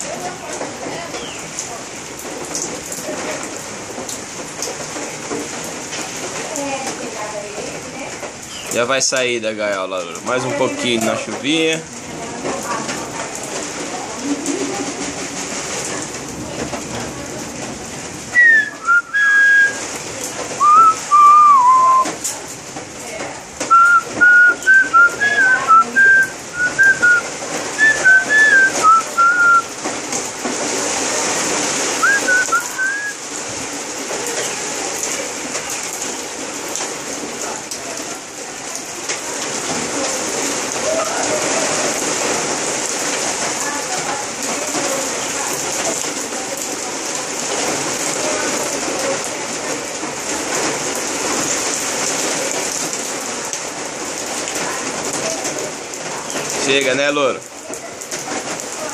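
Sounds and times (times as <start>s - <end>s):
steady rain falling: 0.0s - 58.9s
parrot whistling: 18.4s - 19.8s, 20.6s - 22.0s, 23.7s - 27.2s, 27.8s - 29.6s, 32.0s - 33.2s.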